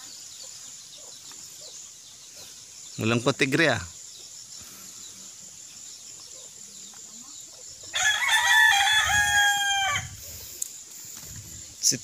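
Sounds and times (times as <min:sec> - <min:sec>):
rooster crowing: 0:07.9 - 0:10.2.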